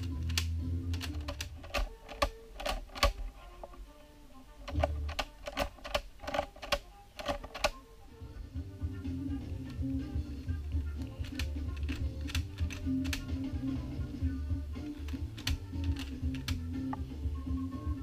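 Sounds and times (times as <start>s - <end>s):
plastic gearbox clicks: 0.0s - 3.4s, 4.6s - 7.8s, 11.0s - 13.3s, 15.1s - 16.7s
background music: 0.0s - 18.0s.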